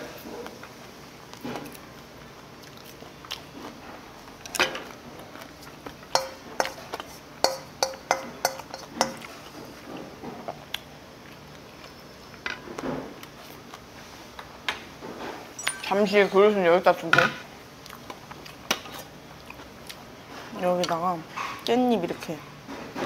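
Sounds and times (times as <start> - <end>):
tableware clinking: 15.6 - 16.4.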